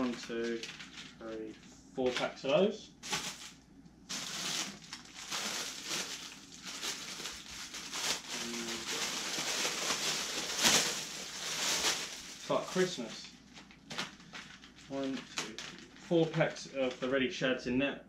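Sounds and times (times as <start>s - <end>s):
plastic packaging crinkling: 0.0s - 1.6s, 3.0s - 17.1s.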